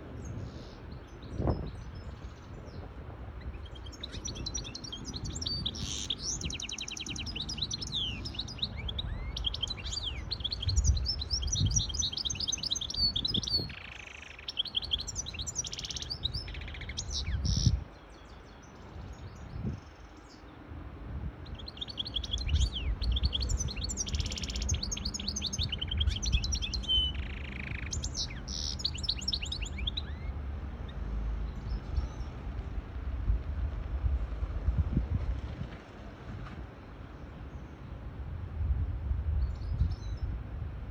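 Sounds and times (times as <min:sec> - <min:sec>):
finch singing twittering trills: 0:00.1 - 0:20.6, 0:21.4 - 0:32.5.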